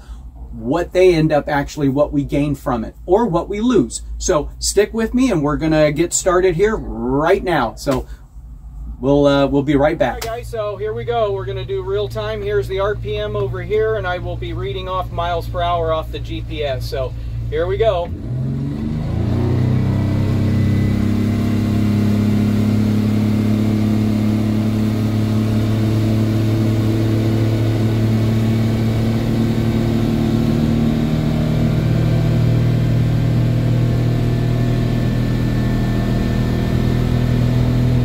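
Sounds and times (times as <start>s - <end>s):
outboard engine revving up: 15.8s - 38.0s.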